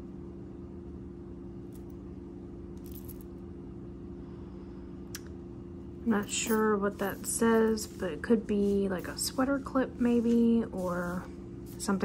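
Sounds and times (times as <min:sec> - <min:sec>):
steady low hum: 0:00.0 - 0:12.0
metal jewelry clinking: 0:02.8 - 0:03.3, 0:06.1 - 0:08.0.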